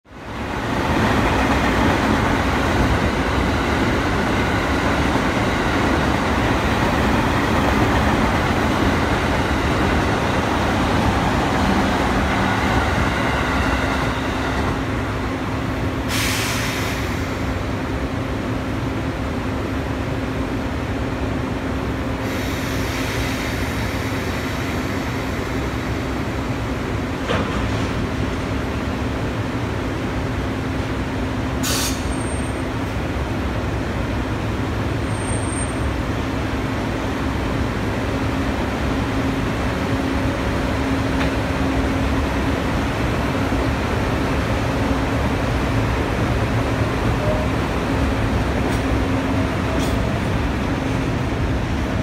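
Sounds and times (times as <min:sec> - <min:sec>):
freight train rumbling: 0:00.1 - 0:52.0
air hissing: 0:31.6 - 0:32.1.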